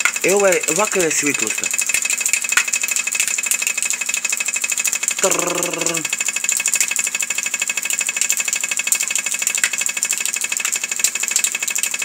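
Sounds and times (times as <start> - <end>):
water pipe and valve rattling: 0.0 - 12.0
faint hum: 5.2 - 6.3.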